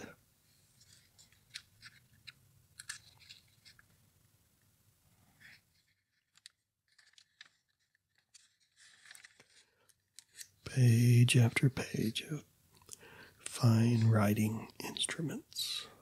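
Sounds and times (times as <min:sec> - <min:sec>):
glossy paper crinkling: 0:00.7 - 0:04.0, 0:05.4 - 0:10.6
page turning: 0:00.8 - 0:04.0, 0:05.4 - 0:10.6.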